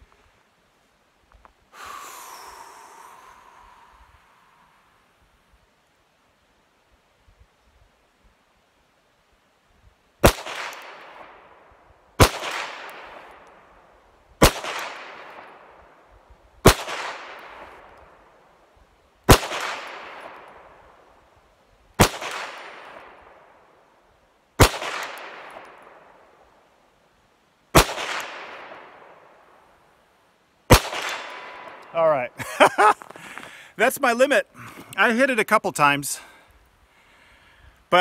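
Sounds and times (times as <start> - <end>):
pistol shots with echo: 12.2 - 13.3, 14.4 - 15.5, 27.8 - 28.9, 30.7 - 31.8.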